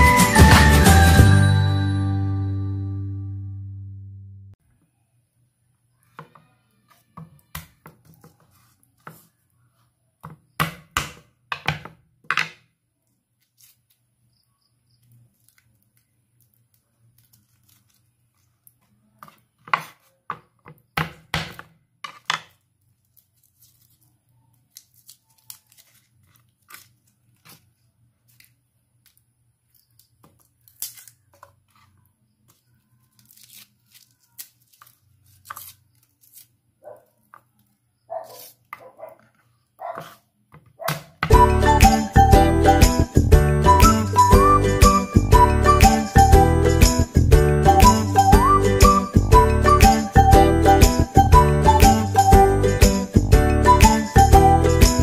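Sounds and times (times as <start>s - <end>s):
papery skin rustling: 8.1s - 9.9s, 13.1s - 14.2s, 15.0s - 20.2s, 22.6s - 40.2s.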